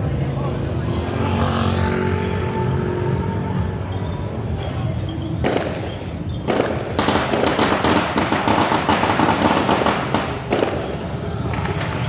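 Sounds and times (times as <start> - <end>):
firecrackers crackling: 5.3 - 12.0.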